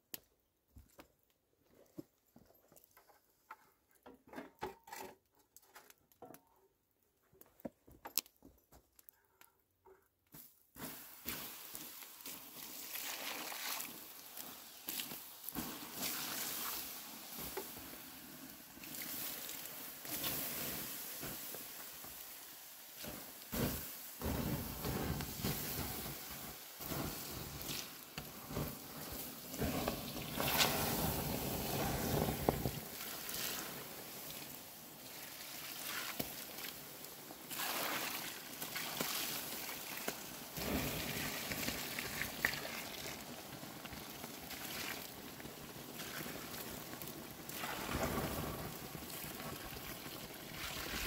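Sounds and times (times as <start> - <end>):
water splashing onto hot coals: 10.4 - 51.0.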